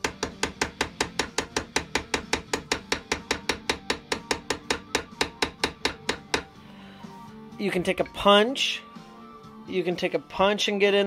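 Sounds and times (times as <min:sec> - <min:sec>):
small hammer tapping metal: 0:00.0 - 0:06.5.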